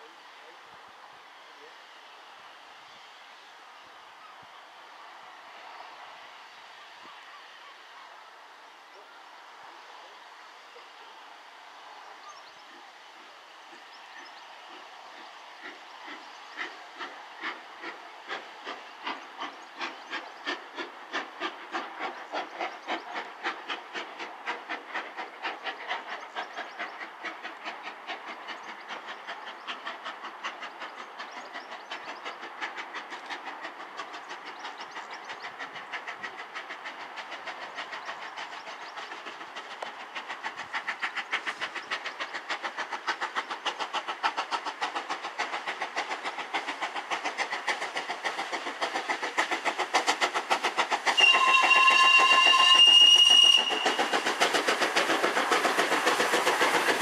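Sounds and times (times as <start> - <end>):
steam locomotive chuffing: 0.0 - 57.0.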